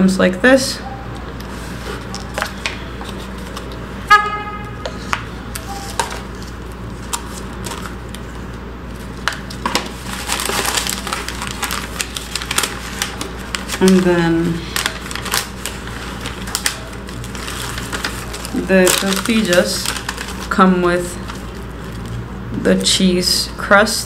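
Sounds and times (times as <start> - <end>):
paper crinkling: 1.2 - 3.9, 4.9 - 22.3
brief pitched tone: 5.6 - 6.0.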